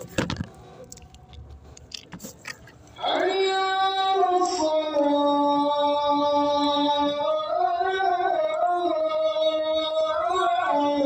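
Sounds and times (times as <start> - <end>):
solo voice chanting: 3.0 - 11.0.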